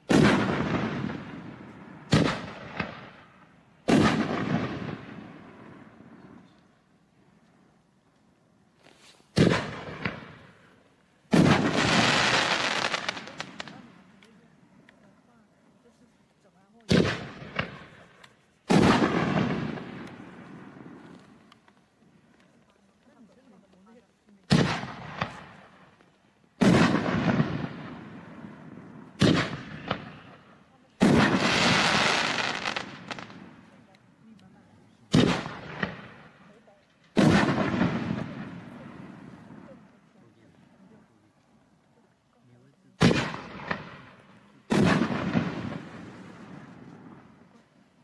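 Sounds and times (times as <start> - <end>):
firework bangs: 0.0 - 6.6, 9.2 - 14.5, 16.9 - 21.5, 24.4 - 26.0, 26.6 - 33.8, 35.0 - 39.9, 43.0 - 47.6
dense firework crackling: 0.0 - 6.8, 8.8 - 14.9, 15.9 - 41.3, 42.6 - 48.0.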